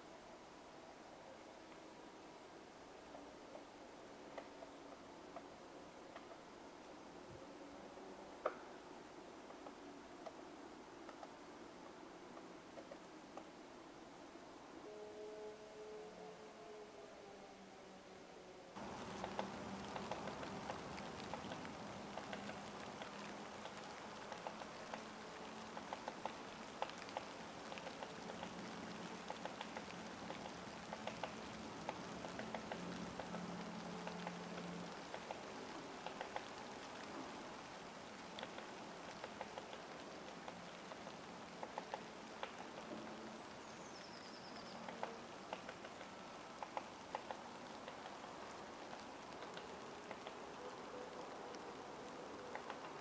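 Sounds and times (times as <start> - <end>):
faint steady hiss: 0.0 - 53.0
light ticks and taps: 18.8 - 37.4, 38.3 - 43.1
woodpecker pecking at bark: 18.8 - 43.1, 44.4 - 50.4, 52.4 - 53.0.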